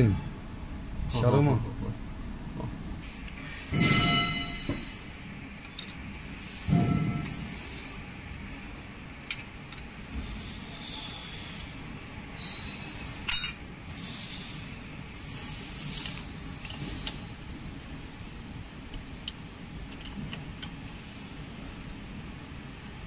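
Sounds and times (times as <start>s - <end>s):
allen key clinking on bolts: 5.6s - 6.0s, 9.2s - 9.9s, 13.2s - 13.8s, 18.9s - 21.6s.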